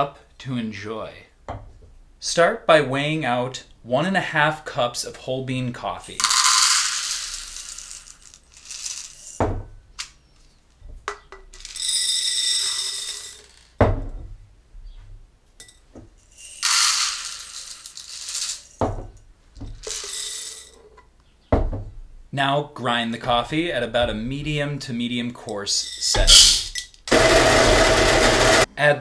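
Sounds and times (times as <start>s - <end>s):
coffee beans rattling pouring: 6.2s - 9.4s, 11.5s - 13.8s, 16.2s - 18.9s, 19.7s - 20.8s.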